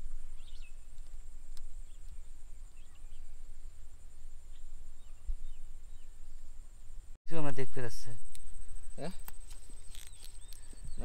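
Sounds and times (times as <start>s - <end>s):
bird chirps: 0.0s - 3.8s, 7.7s - 11.0s
high-pitched insect drone: 7.3s - 11.0s.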